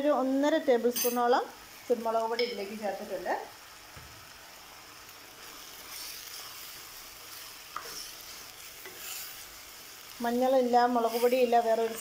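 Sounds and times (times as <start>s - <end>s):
meat sizzling in oil: 0.0s - 12.0s
wooden spoon stirring: 5.8s - 9.4s.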